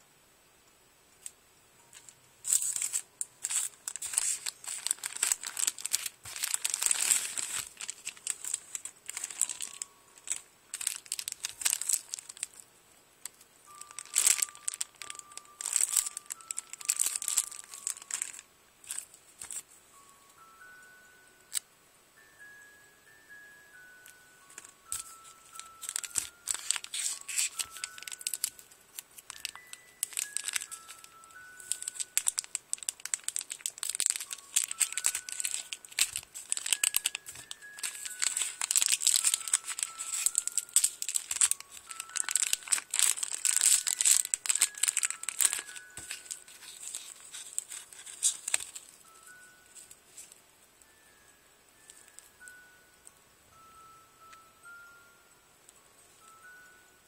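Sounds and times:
soft chiming tune: 1.8 - 57.0
plastic bags crinkling: 1.9 - 19.7, 23.8 - 51.1.

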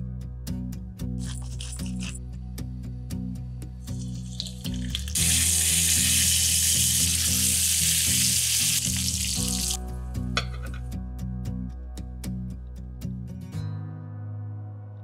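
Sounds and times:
fish fillets sizzling in oil: 3.9 - 9.8.

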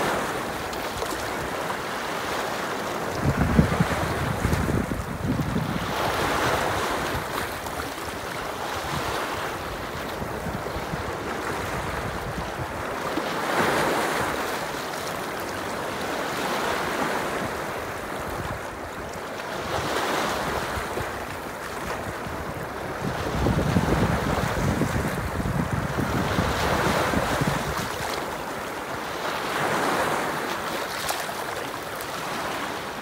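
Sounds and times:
waves splashing over rocks: 0.0 - 33.0
wind rumble on microphone: 3.0 - 13.3, 17.0 - 28.4.

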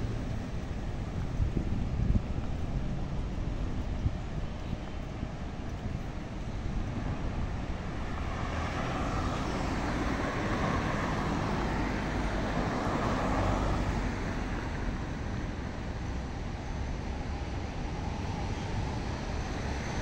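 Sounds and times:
traffic rumble: 0.0 - 20.0
vehicle passing: 7.8 - 15.2.

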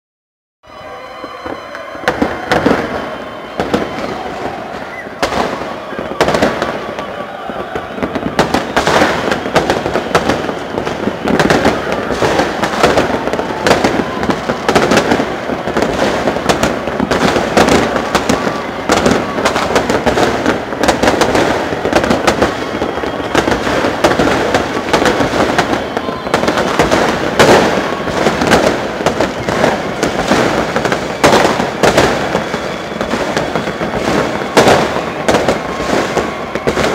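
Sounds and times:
crowd voices: 0.6 - 36.9
fireworks crackling and banging: 0.7 - 36.9.

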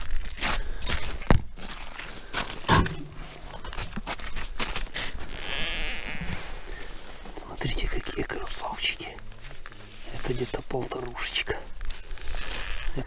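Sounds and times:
boots crunching on snowy ice: 0.0 - 5.3.

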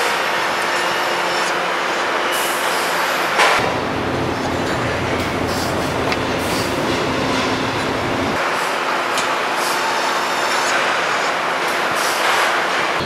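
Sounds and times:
machinery noise and hiss: 0.0 - 13.0.

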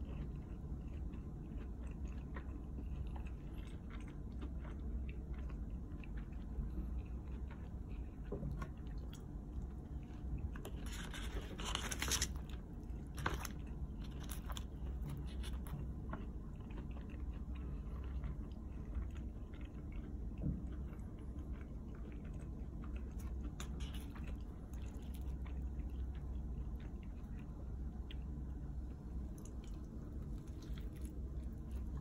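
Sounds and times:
person chewing food: 0.0 - 32.0.

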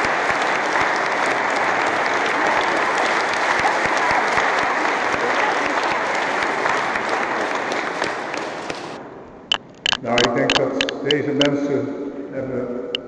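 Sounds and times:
audience clapping: 0.0 - 9.0.

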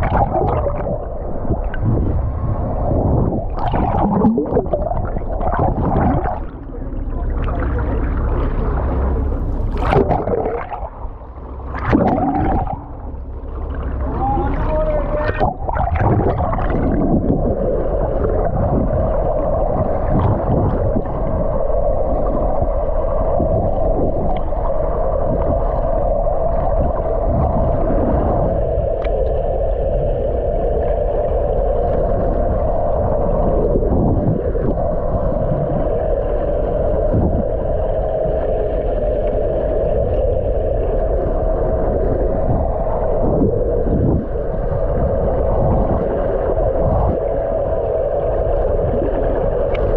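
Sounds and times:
muffled underwater drone: 0.0 - 49.9
water sloshing: 3.4 - 19.0.

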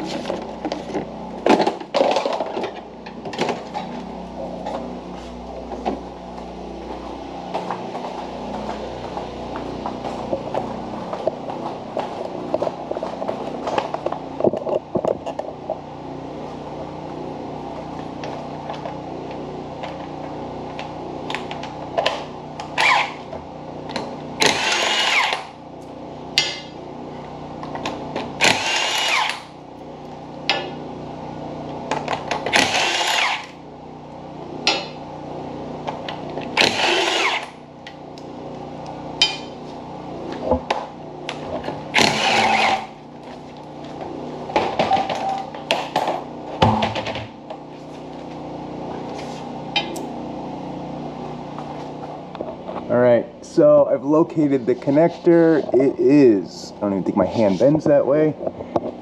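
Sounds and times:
steady low hum: 0.0 - 59.0
impact wrench bursts: 22.7 - 23.3, 24.4 - 25.6, 28.3 - 29.6, 32.3 - 33.6, 36.5 - 37.7, 41.9 - 43.0.

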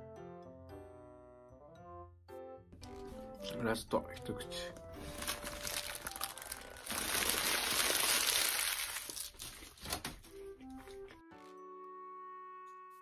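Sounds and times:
soft background music: 0.0 - 13.0
paper wrapper crinkling: 4.7 - 10.4.

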